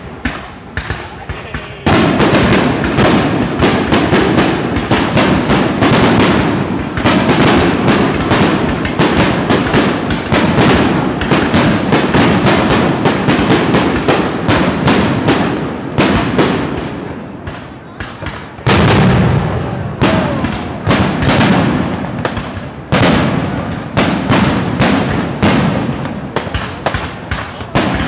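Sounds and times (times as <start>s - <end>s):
fireworks bursting and crackling: 0.0s - 28.0s.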